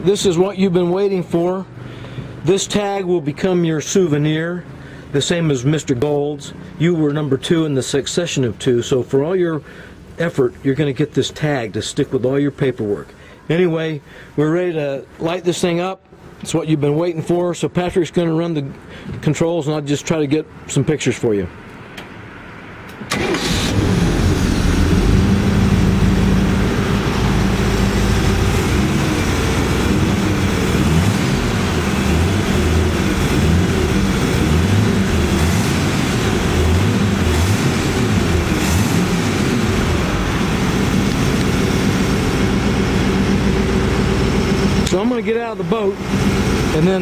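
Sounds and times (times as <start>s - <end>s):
boat engine starting and running: 23.1s - 47.0s.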